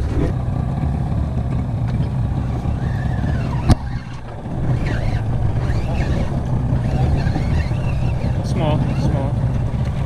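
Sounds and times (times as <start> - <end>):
wind and boat rumble: 0.0 - 10.0
fishing reel cranking: 2.7 - 9.7.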